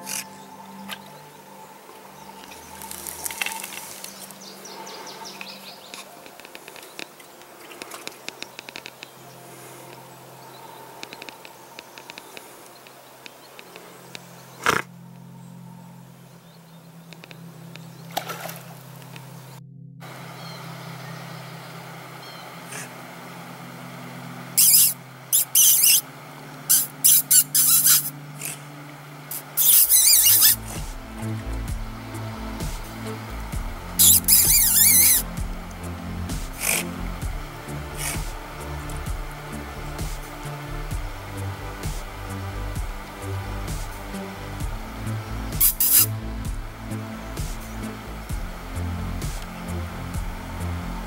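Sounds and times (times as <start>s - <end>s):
otter hissing calls: 0.0s - 14.9s, 19.2s - 23.4s, 24.4s - 51.0s
steady low hum: 0.0s - 51.0s
otters squeaking: 24.6s - 26.0s, 26.7s - 28.7s, 29.3s - 35.6s, 36.3s - 42.4s, 45.0s - 46.1s.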